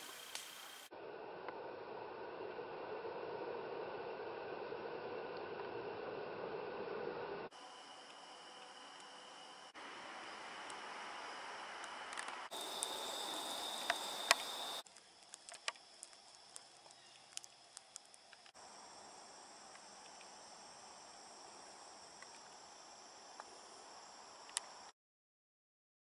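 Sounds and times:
high insect drone: 0:00.0 - 0:00.9, 0:07.5 - 0:24.9
small clicks: 0:13.7 - 0:18.6, 0:24.5 - 0:24.7.

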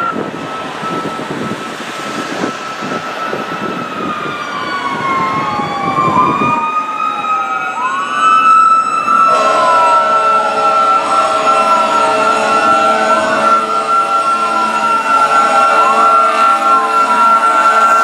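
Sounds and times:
fire engine sirens wailing: 0:00.0 - 0:18.0
mechanical siren: 0:00.0 - 0:18.0
fire engine air horn chord: 0:09.1 - 0:18.0.

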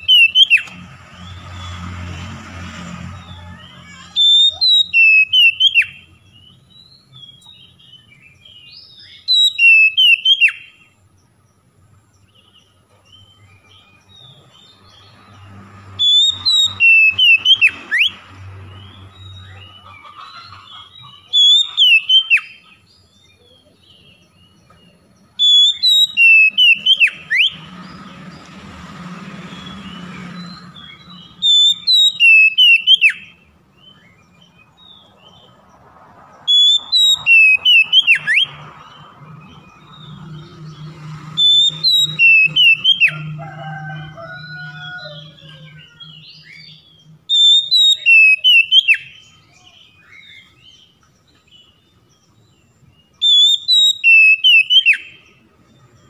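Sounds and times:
bird whistled song phrases: 0:00.0 - 0:00.7, 0:03.6 - 0:10.9, 0:16.0 - 0:18.2, 0:21.0 - 0:24.2, 0:25.4 - 0:27.7, 0:29.6 - 0:34.2, 0:36.5 - 0:39.0, 0:41.4 - 0:43.4, 0:44.7 - 0:50.9, 0:53.2 - 0:55.3.

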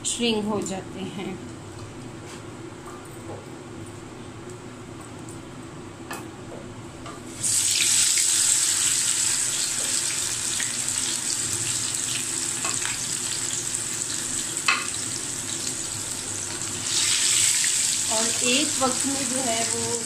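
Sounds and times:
patty sizzling in hot oil: 0:07.3 - 0:20.0.

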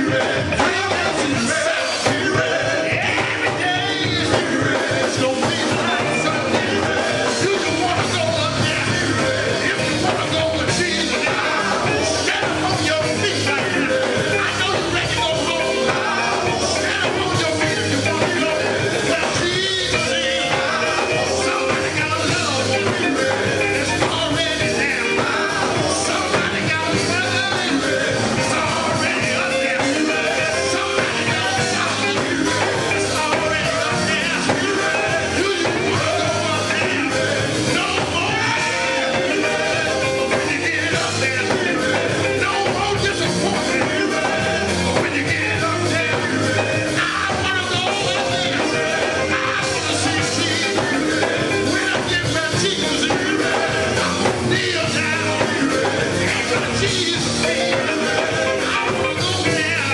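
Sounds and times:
backing vocals: 0:00.0 - 0:59.9
drums: 0:00.0 - 0:59.9
electric guitar: 0:00.0 - 0:59.9
gospel quartet music: 0:00.0 - 0:59.9
lead singer on microphone: 0:00.0 - 0:59.9.

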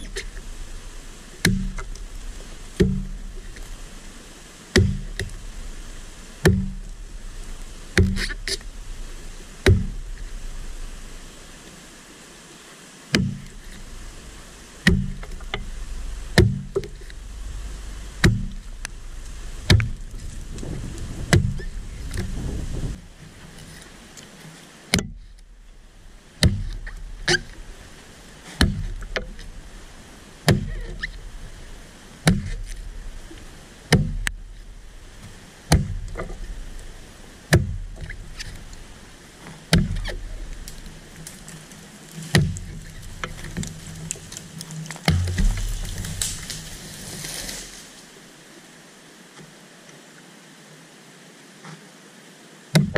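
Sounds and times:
axe chopping wood: 0:01.4 - 0:03.8, 0:04.7 - 0:05.6, 0:06.4 - 0:07.2, 0:07.9 - 0:08.8, 0:09.6 - 0:10.6, 0:13.1 - 0:14.0, 0:14.8 - 0:23.0, 0:24.9 - 0:25.3, 0:26.4 - 0:27.6, 0:28.5 - 0:29.5, 0:30.4 - 0:31.2, 0:32.2 - 0:32.9, 0:33.9 - 0:34.5, 0:35.7 - 0:36.5, 0:37.5 - 0:38.7, 0:39.7 - 0:47.8.

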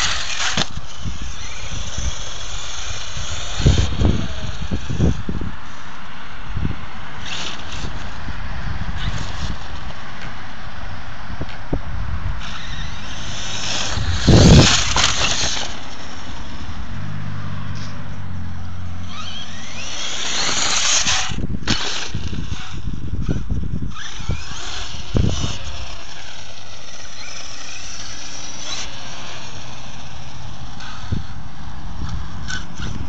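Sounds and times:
wind on microphone: 0:00.0 - 0:05.7, 0:11.3 - 0:17.2, 0:19.1 - 0:33.0
electric motor whining: 0:00.0 - 0:06.0, 0:12.4 - 0:33.0.

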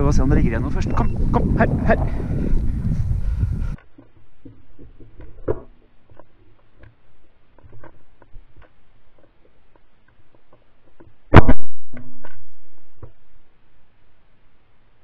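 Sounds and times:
faint clicks and rustles: 0:02.5 - 0:11.3
loud shotgun shot: 0:11.3 - 0:12.1.

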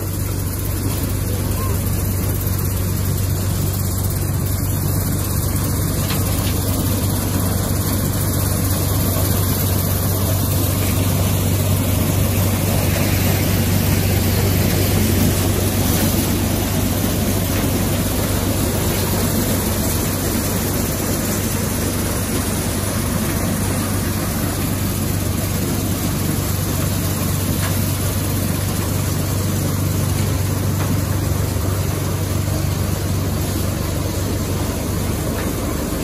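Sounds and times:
corn sheller machine din: 0:00.0 - 0:36.0
steady low hum: 0:00.0 - 0:36.0.

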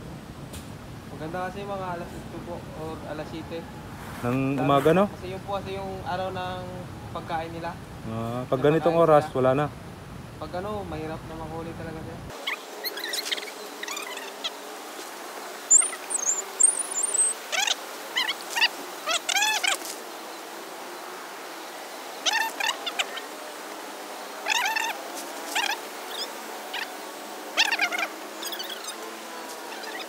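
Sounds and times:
high pitch-bending animal calls: 0:12.3 - 0:14.6, 0:15.7 - 0:20.0, 0:22.2 - 0:23.3, 0:24.4 - 0:29.0, 0:29.7 - 0:30.0
very high warbling call: 0:12.4 - 0:14.6, 0:15.7 - 0:19.9, 0:22.2 - 0:23.3, 0:24.4 - 0:29.0, 0:29.7 - 0:30.0.

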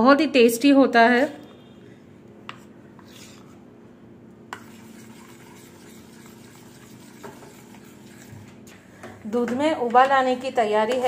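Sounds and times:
spoon stirring thick paste: 0:02.4 - 0:03.8, 0:04.4 - 0:08.8, 0:10.0 - 0:11.0.

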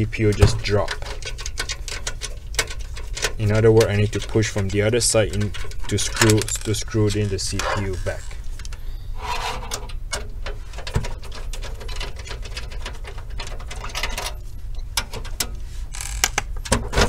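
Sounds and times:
computer case clicks and rattles: 0:00.3 - 0:07.4, 0:09.7 - 0:14.4, 0:16.3 - 0:17.0.

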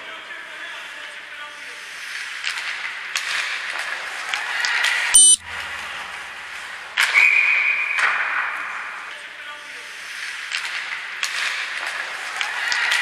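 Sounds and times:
hockey stick and skate clicks: 0:02.0 - 0:05.0, 0:10.1 - 0:13.0
referee's whistle: 0:05.2 - 0:05.4.

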